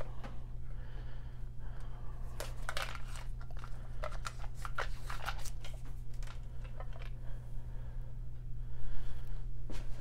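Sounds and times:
crinkling packaging and tin scrapes: 2.4s - 7.1s.

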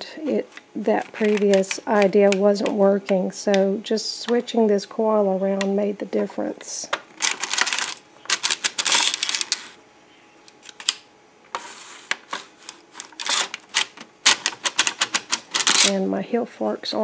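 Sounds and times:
knitting machine needles clattering: 13.1s - 16.0s.

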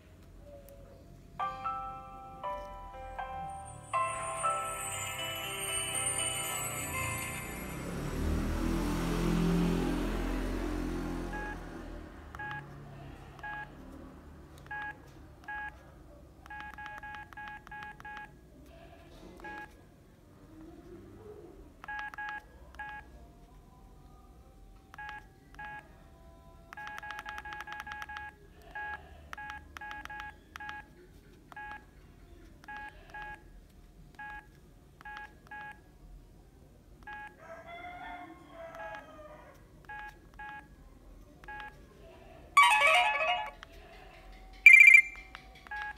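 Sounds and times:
phone start-up tune: 1.7s - 8.8s, 42.6s - 43.6s, 44.7s - 45.2s
phone keypad beeps: 12.4s - 12.6s, 13.4s - 13.7s, 14.7s - 15.8s, 16.5s - 18.3s, 19.4s - 19.7s, 21.8s - 23.0s, 26.8s - 30.9s, 32.7s - 33.4s, 34.2s - 35.8s, 37.1s - 37.4s, 39.9s - 40.7s, 41.4s - 41.8s, 42.6s - 43.6s, 44.6s - 45.9s.

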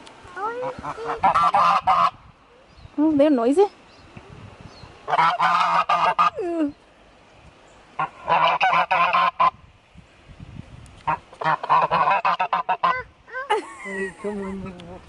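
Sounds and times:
geese honking: 0.6s - 2.2s, 5.1s - 6.4s, 8.0s - 9.6s, 11.0s - 13.0s.

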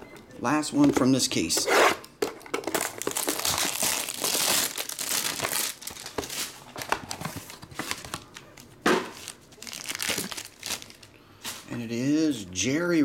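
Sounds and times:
plastic packaging crinkling: 2.6s - 11.7s.

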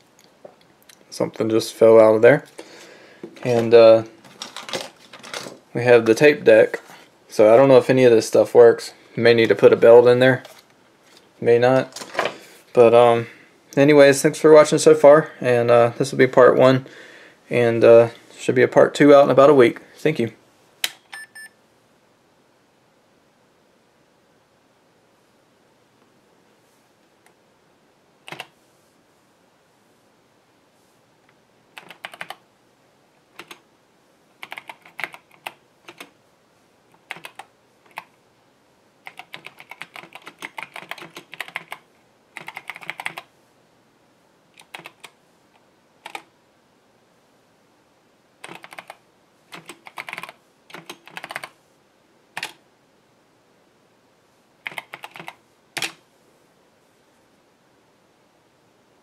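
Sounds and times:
computer keyboard keys clacking: 28.3s - 28.5s, 31.8s - 32.4s, 33.4s - 33.6s, 34.4s - 36.1s, 37.1s - 38.1s, 39.0s - 41.8s, 42.4s - 43.3s, 44.6s - 45.2s, 48.4s - 51.5s, 54.6s - 56.0s.

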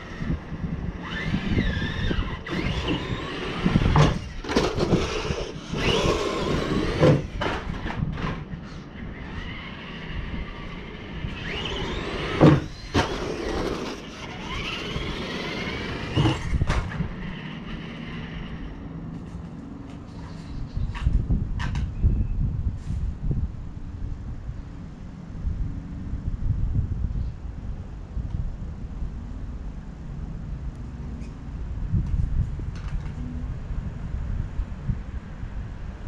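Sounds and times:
electric rc car motor whining: 0.0s - 18.8s.

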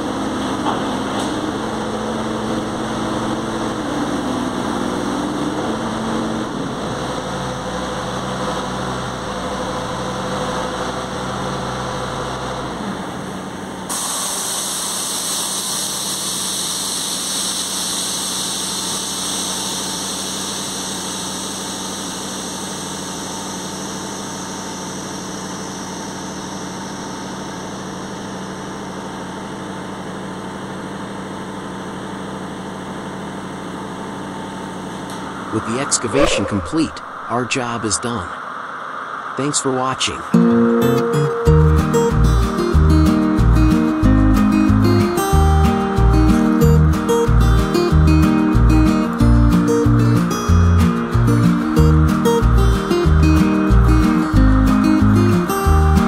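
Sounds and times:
diesel engine idling: 0.0s - 13.9s, 41.5s - 56.0s.

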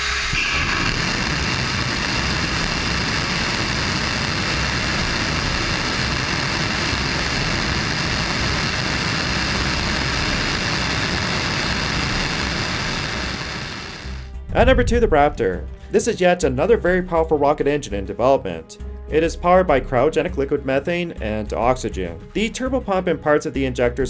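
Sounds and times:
rocket engine exhaust roaring: 0.0s - 16.0s.

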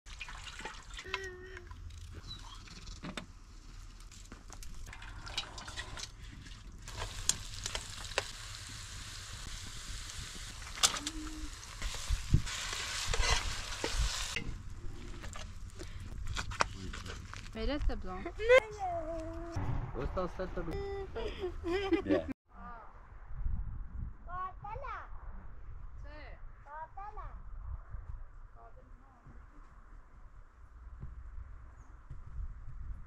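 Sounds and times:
vegetables sizzling in oil: 6.9s - 14.4s
spoon scraping against pot: 13.1s - 13.6s.

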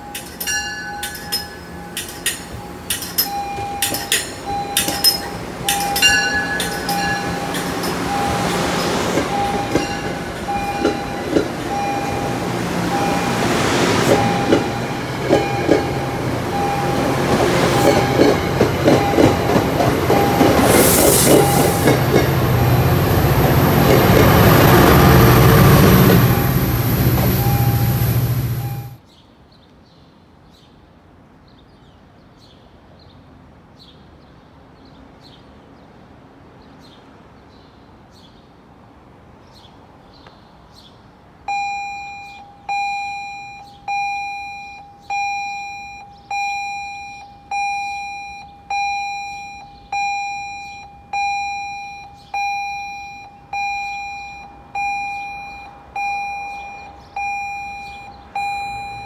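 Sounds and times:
railroad crossing bell ringing: 0.0s - 29.0s, 41.5s - 59.0s.

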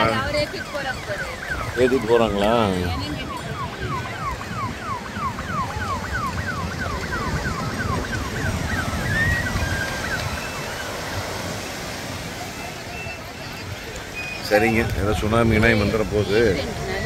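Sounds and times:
police siren wailing: 0.0s - 17.0s
surf rumbling: 0.0s - 17.0s.

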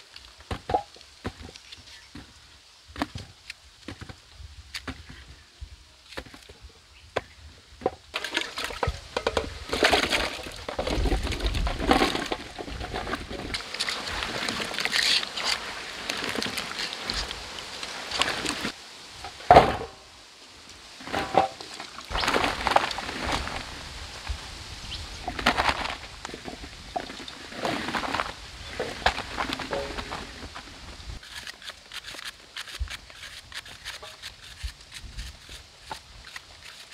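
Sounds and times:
bananas tumbling onto leaves: 21.0s - 31.2s.

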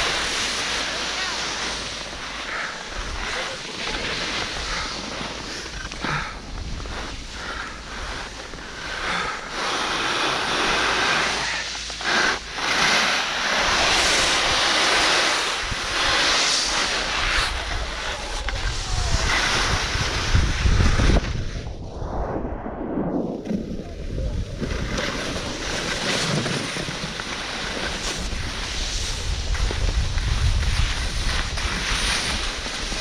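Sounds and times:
skis carving on snow: 0.0s - 21.7s, 23.0s - 33.0s
wind buffeting microphone: 15.5s - 26.8s, 28.2s - 33.0s.

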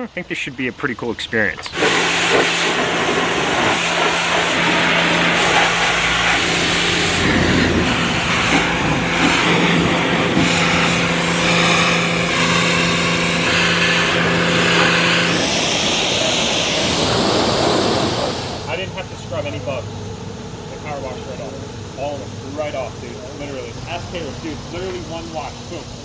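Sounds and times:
low hum: 1.5s - 26.0s
pressure washer spraying: 1.7s - 18.8s.

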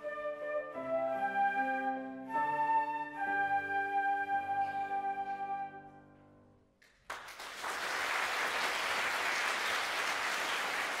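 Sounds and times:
audience applause: 6.9s - 11.0s.

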